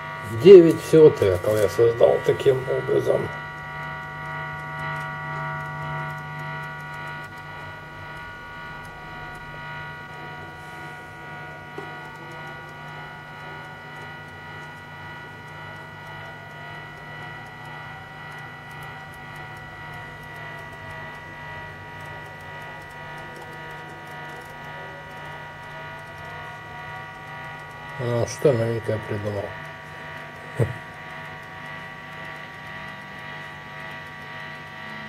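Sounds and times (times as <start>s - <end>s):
low electronic hum: 0.0s - 35.0s
steady high tones: 0.0s - 35.0s
click: 0.6s - 10.5s, 11.2s - 35.0s.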